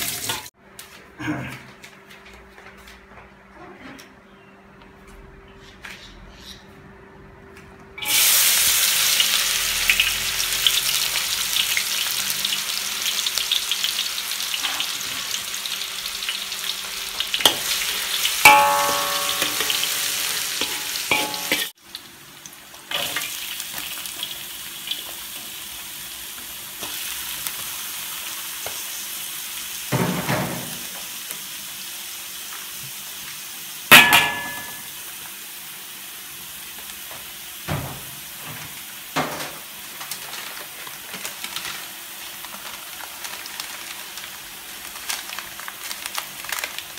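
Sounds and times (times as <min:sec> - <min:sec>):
food sizzling in hot oil: 0:00.0 - 0:00.5, 0:08.0 - 0:46.9
metal spatula clanging on wok: 0:18.5 - 0:21.7, 0:33.9 - 0:34.9.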